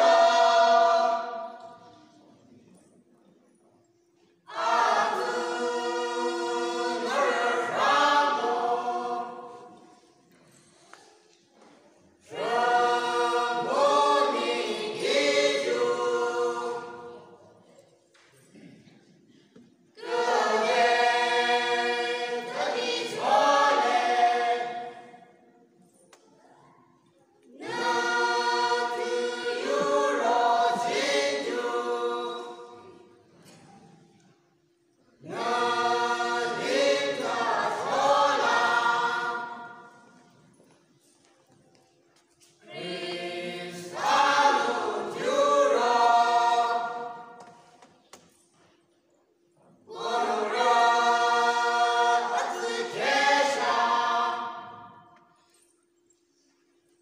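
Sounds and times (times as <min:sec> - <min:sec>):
group singing unaccompanied: 0:00.0 - 0:02.0, 0:04.4 - 0:10.1, 0:12.2 - 0:17.7, 0:20.0 - 0:25.7, 0:27.5 - 0:33.7, 0:35.2 - 0:40.5, 0:42.4 - 0:48.0, 0:49.7 - 0:55.3.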